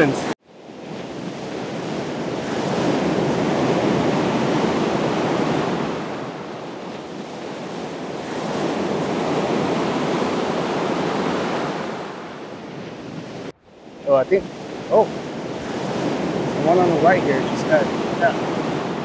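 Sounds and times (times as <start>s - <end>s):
surf breaking on beach: 0.0s - 19.0s.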